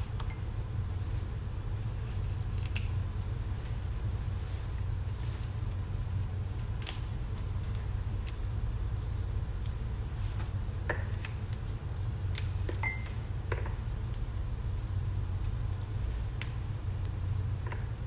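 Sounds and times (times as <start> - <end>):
steady low hum: 0.0 - 18.0
leaves snapping and rustling: 1.9 - 12.8.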